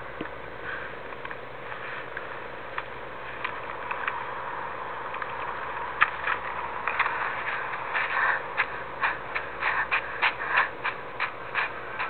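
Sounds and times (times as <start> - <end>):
running footsteps in snow: 5.3 - 12.0.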